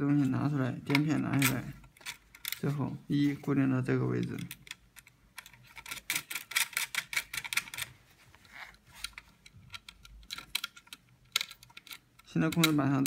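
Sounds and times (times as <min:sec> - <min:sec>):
metal hardware clicking: 0:00.9 - 0:02.8, 0:04.2 - 0:07.9, 0:09.0 - 0:13.0.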